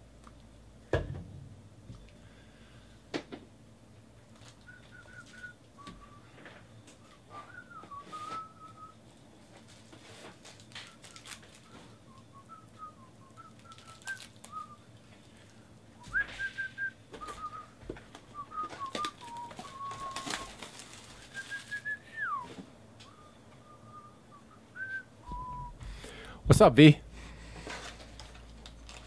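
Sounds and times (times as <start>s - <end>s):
person whistling a tune: 4.6s - 6.5s, 7.1s - 9.0s, 10.8s - 14.8s, 16.0s - 20.6s, 21.2s - 26.2s
card boxes clicking and rustling: 17.2s - 22.0s.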